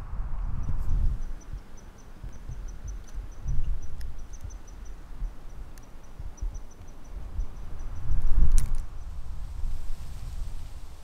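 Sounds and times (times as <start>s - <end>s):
insect chirping: 0.6s - 9.2s.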